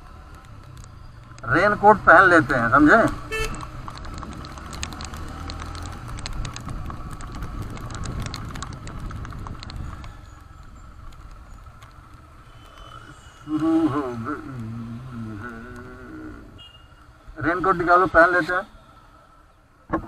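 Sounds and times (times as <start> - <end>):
raindrops ticking on camera: 0.0 - 16.2
motorcycle engine running: 2.9 - 16.7.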